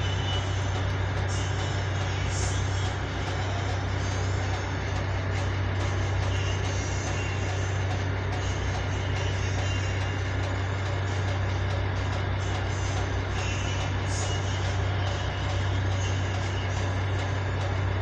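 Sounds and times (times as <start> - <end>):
ship engine drone: 0.0 - 18.0.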